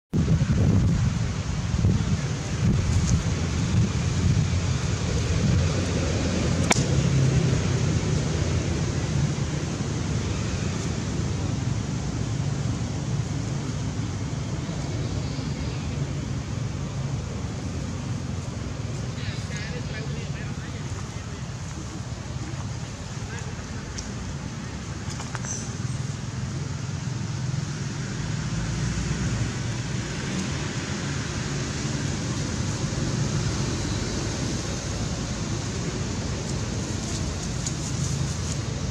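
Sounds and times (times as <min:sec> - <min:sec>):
low outdoor rumble: 0:00.2 - 0:38.9
sharp click: 0:06.6 - 0:06.9.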